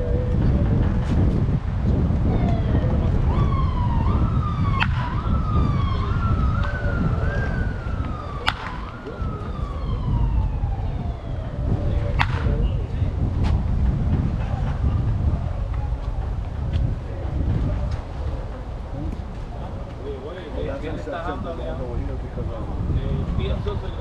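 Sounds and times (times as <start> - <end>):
steady low rumble: 0.0 - 24.0
siren wailing: 2.0 - 13.2
baseball bat hitting ball: 4.7 - 5.4, 8.4 - 9.2, 12.0 - 12.8.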